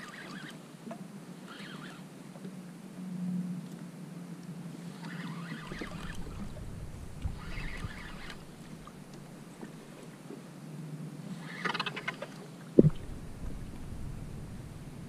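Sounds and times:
fishing reel ticking: 0.0s - 0.6s, 1.5s - 2.0s, 4.9s - 9.4s
water lapping around kayak: 0.0s - 15.0s.

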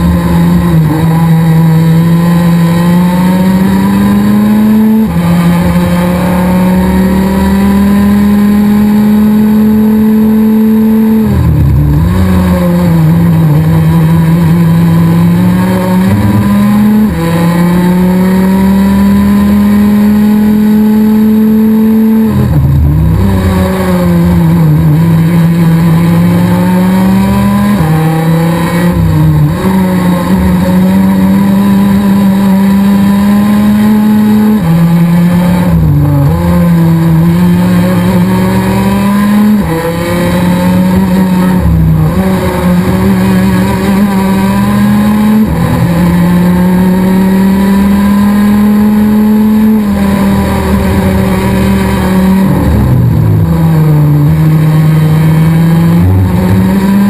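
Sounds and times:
kart engine at racing speed: 0.0s - 57.0s.

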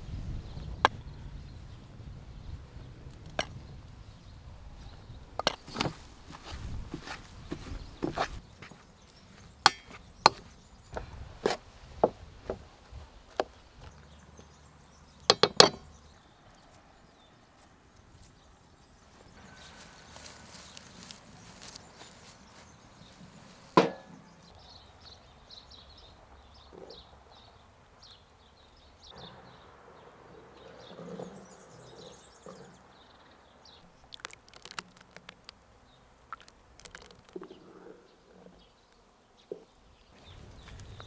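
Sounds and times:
pan clanking on iron stove: 23.8s - 24.1s.

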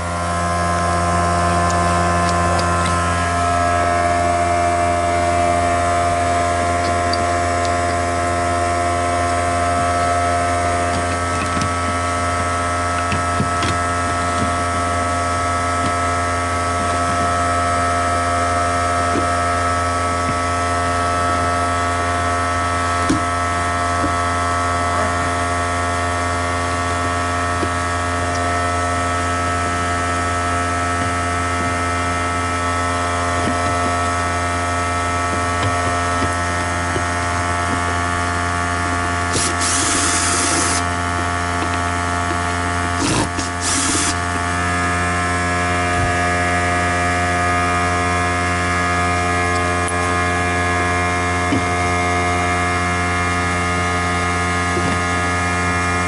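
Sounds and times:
vacuum motor humming: 0.0s - 56.0s
stone rubbing on commutator: 38.7s - 44.2s.

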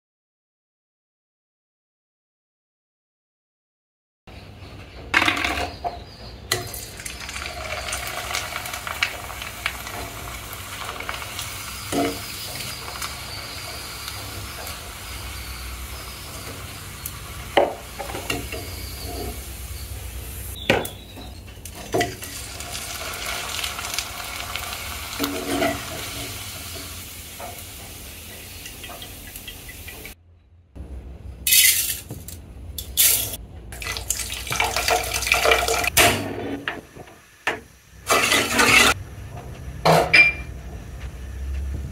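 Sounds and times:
deep-frying sizzle in oil: 6.5s - 30.2s, 33.8s - 39.0s.

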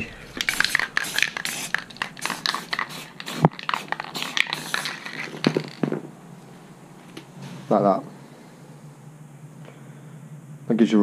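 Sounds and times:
spray paint can hissing: 0.3s - 5.8s.

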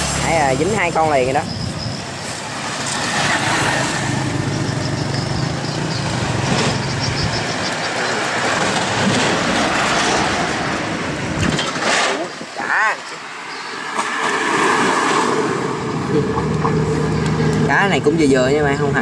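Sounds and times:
vehicle passing by: 0.0s - 11.4s, 13.8s - 19.0s.

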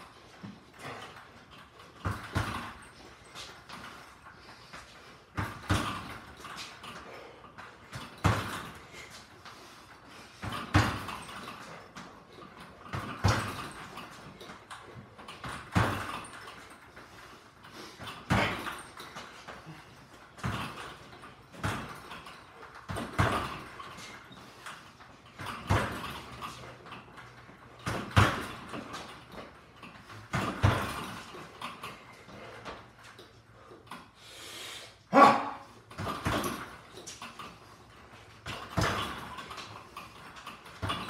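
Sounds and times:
punches hitting a punching bag: 2.0s - 2.9s, 5.3s - 6.4s, 7.9s - 8.8s, 10.4s - 11.6s, 12.9s - 14.0s, 15.4s - 16.3s, 18.0s - 18.9s, 22.9s - 23.8s, 25.4s - 26.5s, 27.8s - 29.1s, 30.3s - 31.4s, 35.2s - 36.7s, 38.4s - 39.5s.

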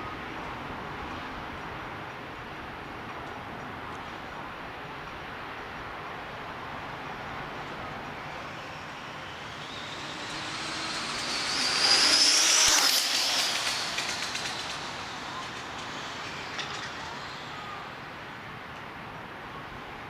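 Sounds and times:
rc car motor whine: 7.4s - 18.3s.

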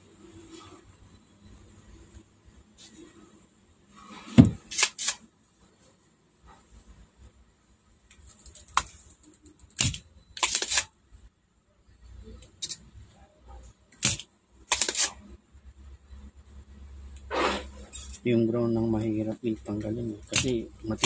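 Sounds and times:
desoldering pump snapping: 8.1s - 10.8s, 14.0s - 15.2s, 19.6s - 21.0s
short scraping hisses: 17.2s - 18.2s.

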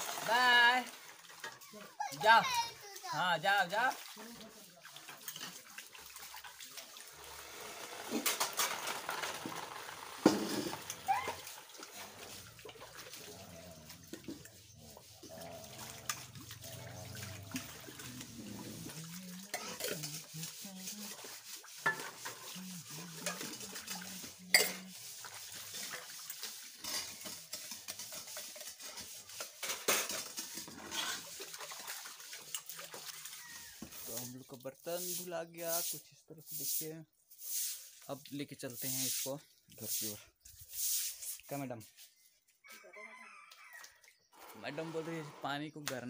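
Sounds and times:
water sloshing: 0.0s - 35.2s
metal utensils clanking: 8.0s - 11.0s, 16.0s - 20.6s, 21.8s - 26.0s, 26.6s - 31.3s.

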